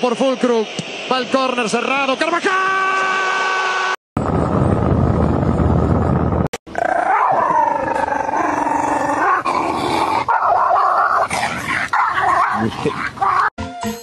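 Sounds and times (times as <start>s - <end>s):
noisy rumble: 4.2s - 13.3s
dog howling: 6.7s - 9.5s, 10.2s - 13.5s.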